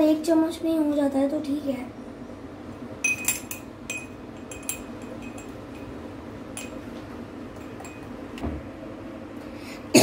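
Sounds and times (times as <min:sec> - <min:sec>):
spoon clinking against glass: 0:03.0 - 0:06.9, 0:07.6 - 0:08.2.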